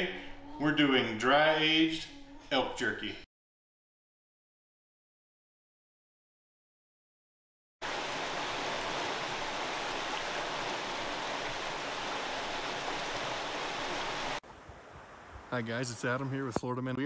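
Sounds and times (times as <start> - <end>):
creek rushing over stones: 7.8 - 16.7.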